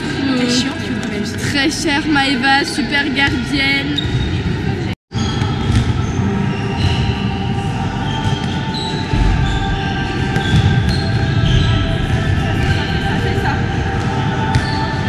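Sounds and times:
balls bouncing in a hall: 0:00.0 - 0:15.0.

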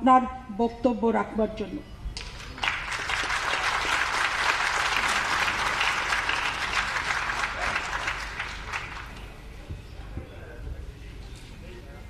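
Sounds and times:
crowd applauding: 0:02.2 - 0:09.5.

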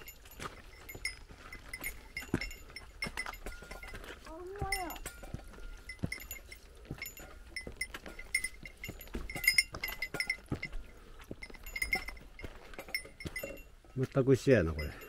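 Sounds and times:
footsteps on trail: 0:00.0 - 0:15.0
small metal bell jingling: 0:00.0 - 0:15.0.

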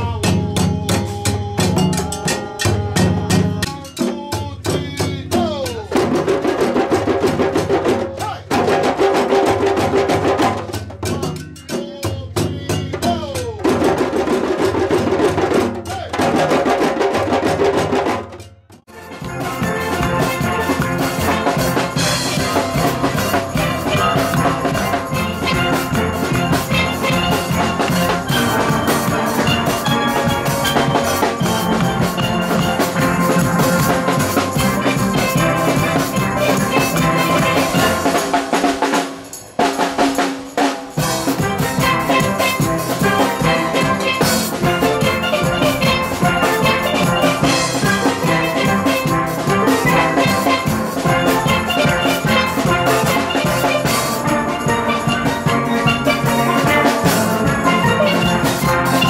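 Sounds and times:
drum beat: 0:00.0 - 0:59.0
steel band playing: 0:16.4 - 0:59.0.

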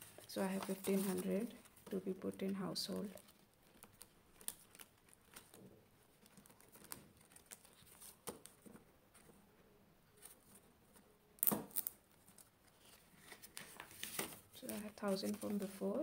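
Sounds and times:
plastic envelopes rustling and clicking: 0:00.0 - 0:02.0, 0:02.9 - 0:09.4, 0:11.5 - 0:16.0
plastic crinkle: 0:02.9 - 0:08.7
paper banknotes handled: 0:12.2 - 0:16.0.

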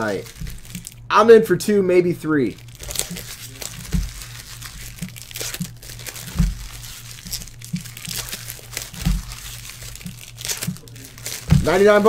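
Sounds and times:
foil wrappers crinkling: 0:00.0 - 0:01.1, 0:02.4 - 0:12.0
low steady hum: 0:00.0 - 0:12.0
dull thumps: 0:03.8 - 0:12.0.

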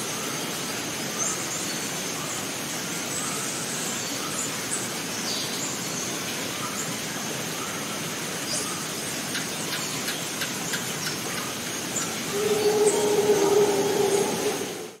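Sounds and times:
constant hiss: 0:00.0 - 0:15.0
low steady animal call: 0:12.2 - 0:15.0.

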